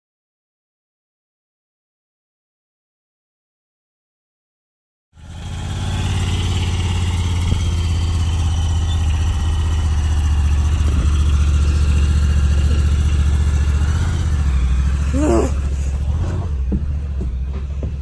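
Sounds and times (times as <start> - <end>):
vehicle engine at low revs: 5.2 - 18.0.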